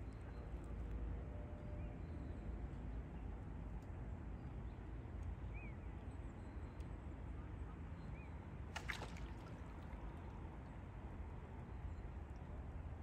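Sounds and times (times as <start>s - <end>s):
water splash: 8.8s - 10.0s.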